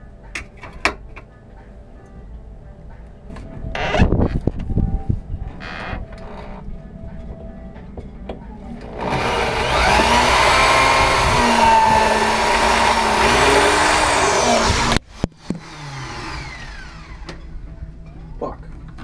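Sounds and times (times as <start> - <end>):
electric drill running: 8.8 - 17.4.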